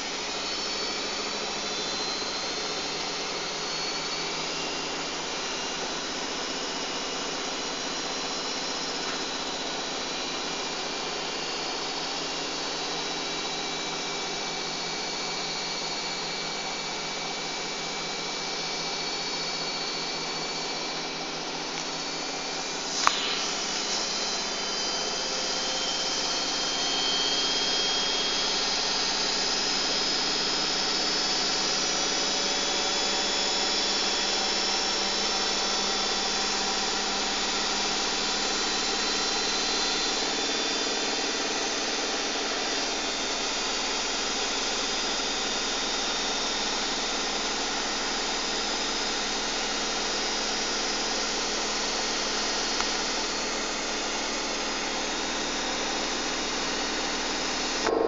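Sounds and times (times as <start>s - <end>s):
washing machine spinning: 0.0s - 43.0s
faint whine: 54.4s - 58.0s.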